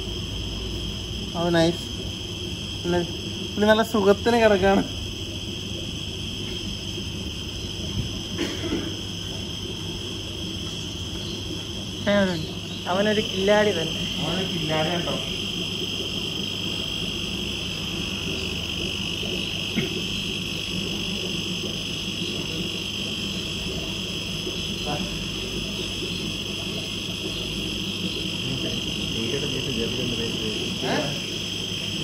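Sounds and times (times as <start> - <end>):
low background hum: 0.0 - 32.0
high-pitched drone: 28.4 - 31.3.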